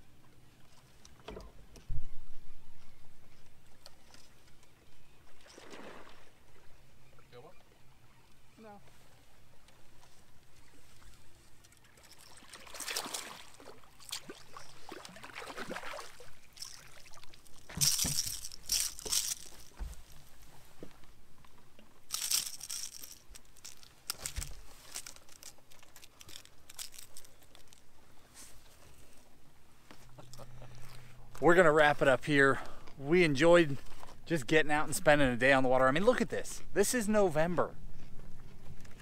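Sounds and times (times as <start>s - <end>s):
fish splashing in water: 5.4s - 6.4s, 12.3s - 19.7s.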